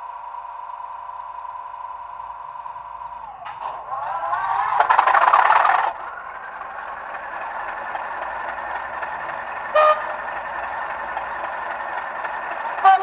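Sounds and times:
model diesel engine sound: 0.0s - 13.0s
short horn toot: 9.8s - 10.2s.

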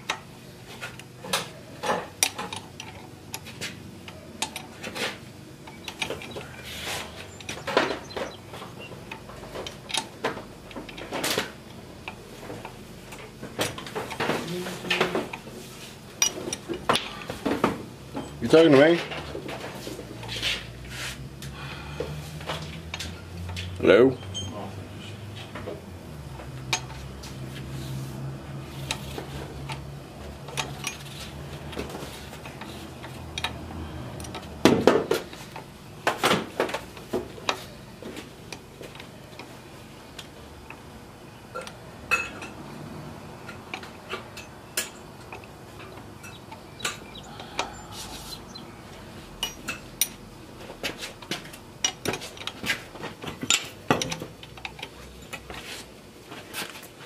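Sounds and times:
metal clinking and tapping: 49.4s - 50.2s.

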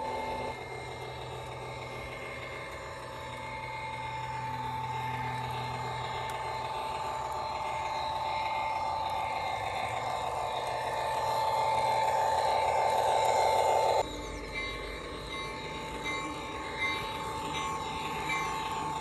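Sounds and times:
model train whine: 0.0s - 19.0s.

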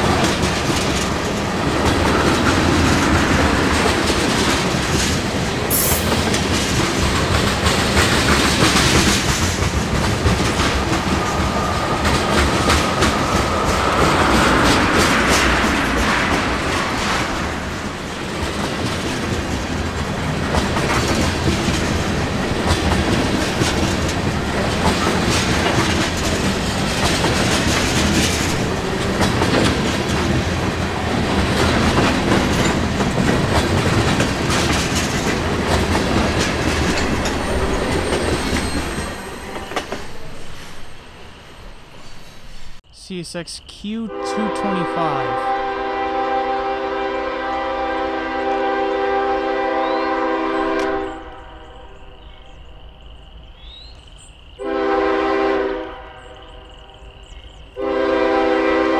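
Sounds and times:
train wheels clacking on rails: 0.0s - 40.4s
high wheel squeal: 37.2s - 41.3s.

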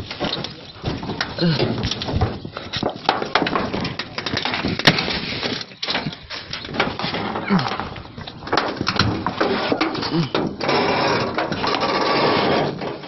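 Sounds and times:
hand rubbing corrugated metal: 8.6s - 13.0s.

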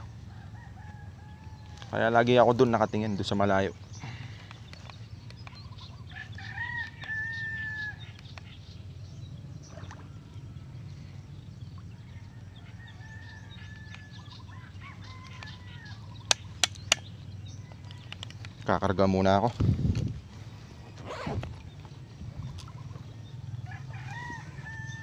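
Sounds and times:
rooster crowing: 6.1s - 8.0s, 23.6s - 25.0s
sharp clicks: 16.3s - 17.1s.

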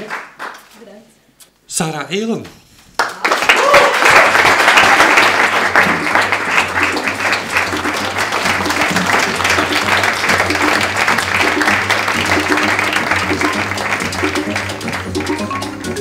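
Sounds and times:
audience applauding: 3.0s - 16.0s
background music: 5.4s - 16.0s.

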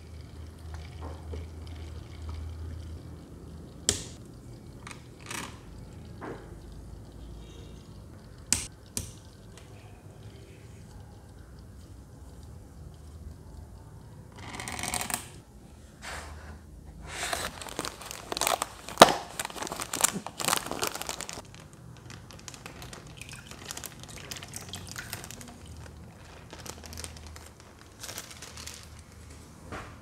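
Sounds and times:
plastic bag crinkling: 17.1s - 29.3s.

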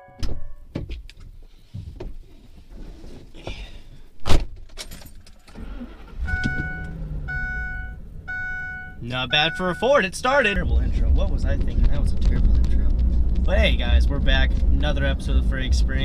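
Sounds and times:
truck engine idling: 5.7s - 11.1s
dashboard warning chime: 6.1s - 10.1s.

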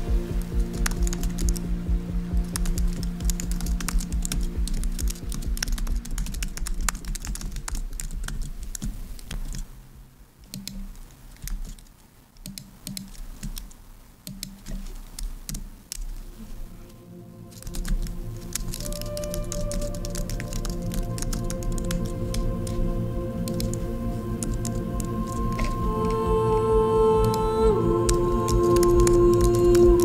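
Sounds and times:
typing on computer keyboard: 0.7s - 1.6s, 2.5s - 9.6s, 17.6s - 22.8s, 23.4s - 23.8s, 24.4s - 25.8s, 28.1s - 30.0s.

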